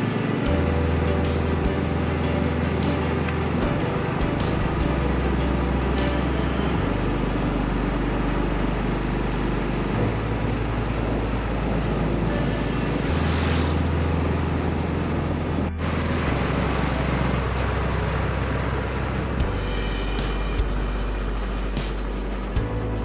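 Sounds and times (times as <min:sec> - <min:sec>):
low bass music: 0:00.0 - 0:23.0
vehicle road and wind noise: 0:00.0 - 0:23.0
passing whoosh: 0:12.8 - 0:15.0.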